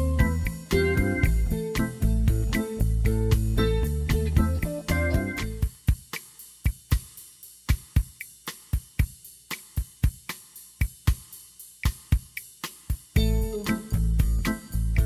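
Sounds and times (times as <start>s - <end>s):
background music: 0.0s - 5.7s, 13.2s - 15.0s
drum break percussion hits: 0.0s - 15.0s.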